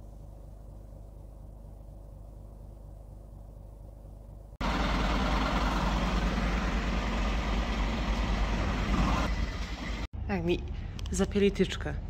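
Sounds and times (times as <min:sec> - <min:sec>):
faint low hum: 0:00.0 - 0:04.6
diesel engine idling: 0:04.6 - 0:10.1.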